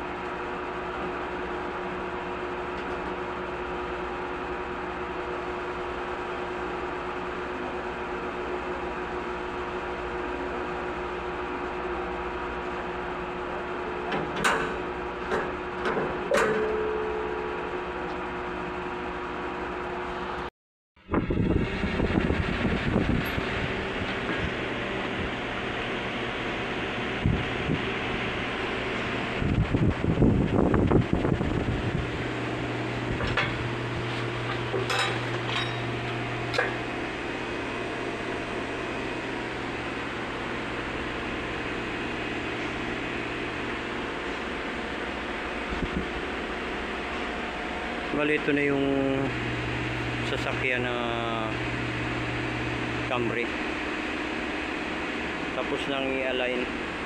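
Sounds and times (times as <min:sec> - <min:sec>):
workshop hum: 0:00.0 - 0:57.0.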